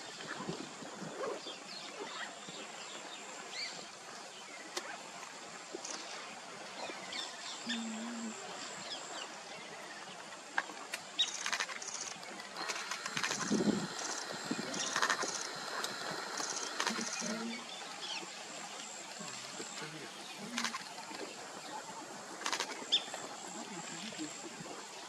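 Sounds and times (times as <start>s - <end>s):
high insect buzz: 11.2s - 24.6s
birds chirping: 11.2s - 24.7s
pulsing insect trill: 11.2s - 25.0s.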